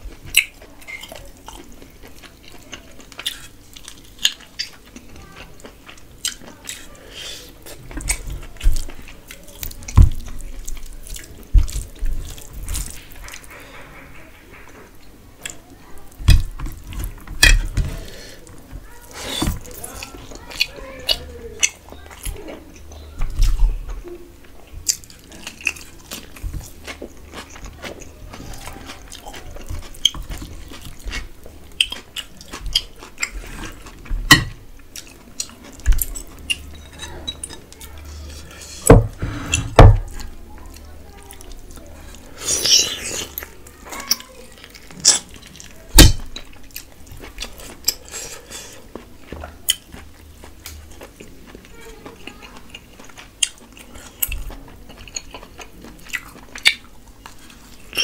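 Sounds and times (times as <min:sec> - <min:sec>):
chewing and lip-smacking: 0:00.0 - 0:07.0, 0:07.6 - 0:13.8, 0:18.4 - 0:38.6, 0:40.0 - 0:58.0.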